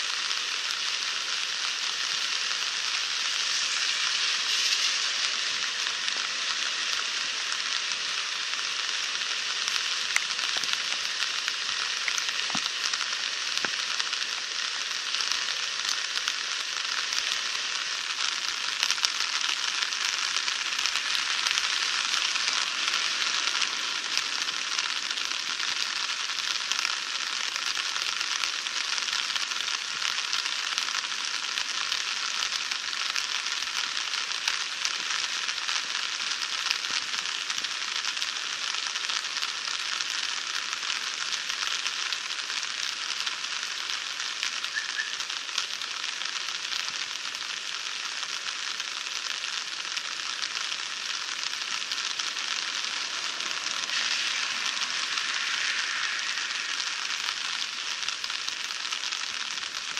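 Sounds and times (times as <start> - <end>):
floodwater rushing: 50.4 - 59.9.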